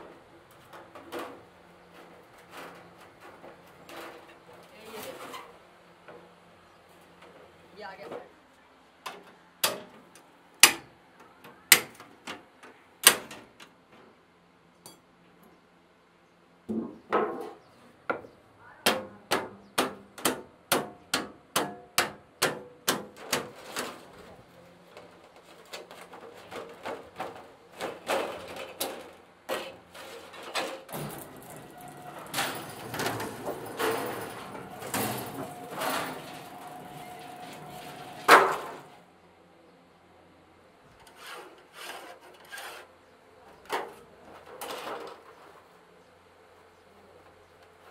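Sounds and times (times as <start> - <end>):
hammer striking sheet steel: 18.9 - 23.8, 30.9 - 39.0
scraping on metal: 23.2 - 39.0, 41.0 - 42.9
loud metal clang: 30.9 - 39.0.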